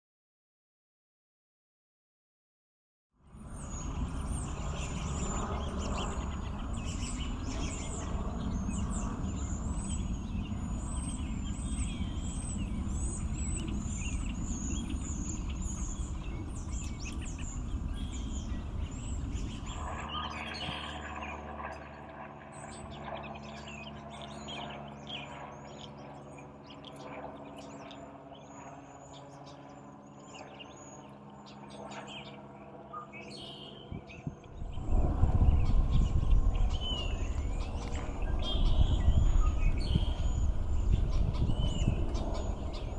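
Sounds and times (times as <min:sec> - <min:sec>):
birds giving high-pitched calls: 0:22.9 - 0:42.9
steady low hum: 0:25.6 - 0:42.9
low background rumble: 0:34.5 - 0:42.9.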